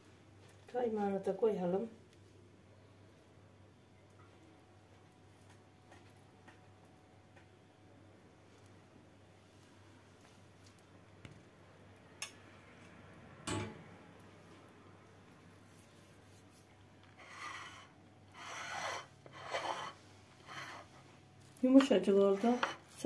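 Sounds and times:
plate scraping on stone: 17.1 - 21.0, 22.3 - 23.0.

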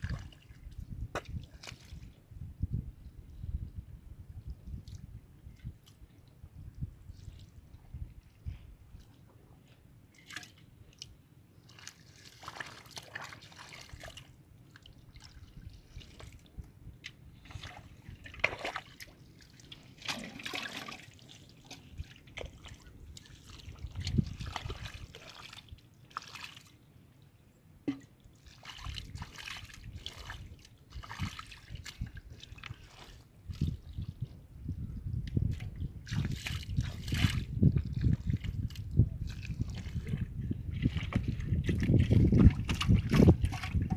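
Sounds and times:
hands splashing in muddy water: 1.2 - 2.2, 10.2 - 26.7, 27.9 - 34.1, 35.4 - 43.9.

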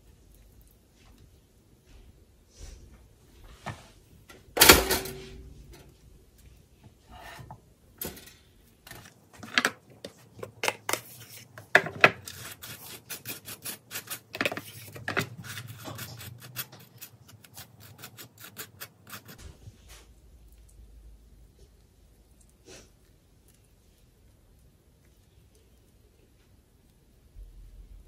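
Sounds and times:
knife scraping toast: 10.4 - 19.4.

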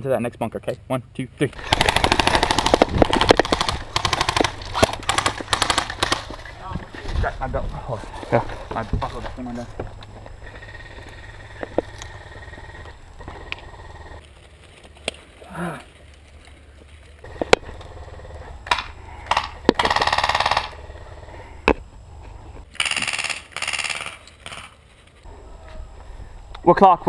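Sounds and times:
airsoft gun full-auto bursts: 1.6 - 6.3, 18.7 - 20.8, 22.8 - 24.7.

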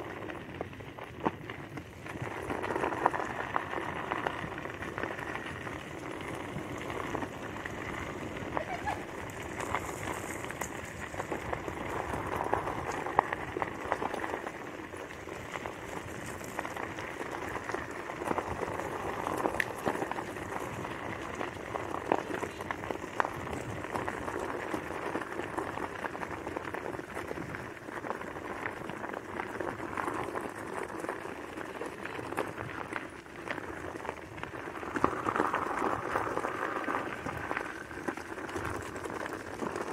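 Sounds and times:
wheels crunching on gravel: 0.0 - 39.9.

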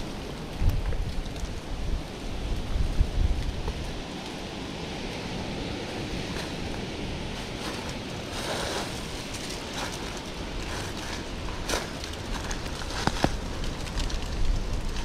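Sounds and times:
wind rumble on microphone: 0.0 - 15.0
footsteps crunching through dry leaves: 3.7 - 13.8
twigs snapping: 7.4 - 15.0.

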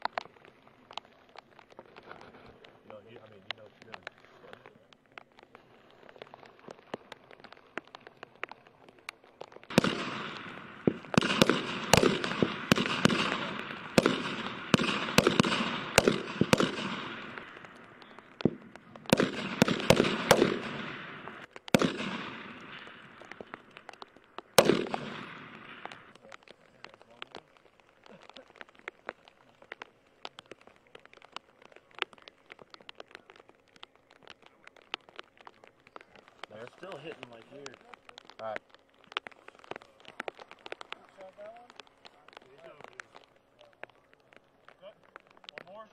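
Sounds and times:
faint distant gunshots: 9.6 - 26.2
rifle shots with echo: 9.7 - 26.2.

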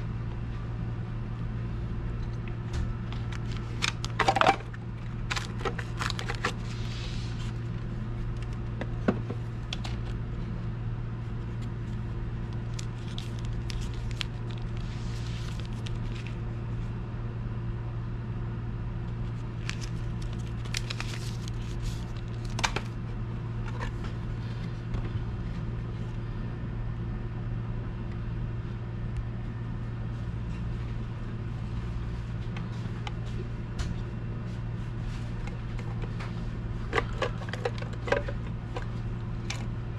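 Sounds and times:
steady low hum: 0.0 - 39.9
paper rustling and crinkling: 3.1 - 8.6, 11.4 - 16.4, 19.3 - 23.0.

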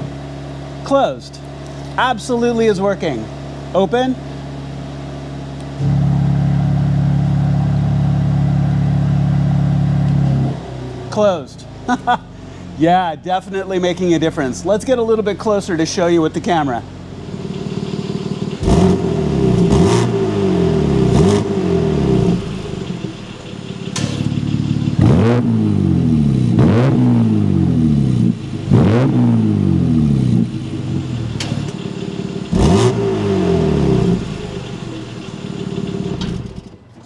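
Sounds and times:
car engine revving: 4.2 - 11.2, 15.7 - 36.7.

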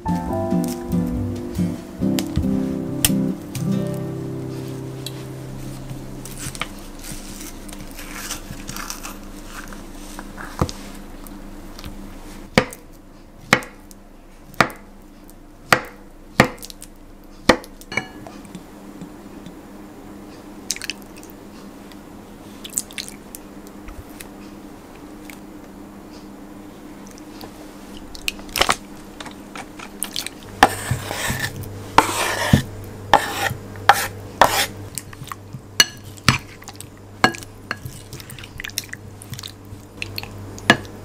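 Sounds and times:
faint steady hum: 0.0 - 41.0
knife chopping on wooden board: 12.6 - 12.8, 30.6 - 34.7
spoon scraping avocado: 29.6 - 35.4.

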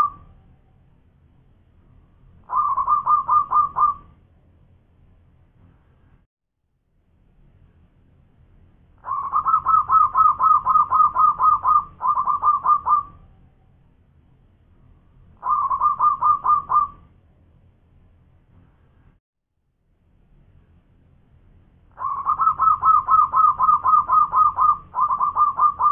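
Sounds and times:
dove cooing: 2.5 - 4.1, 9.0 - 13.2, 15.4 - 17.0, 22.0 - 25.9.

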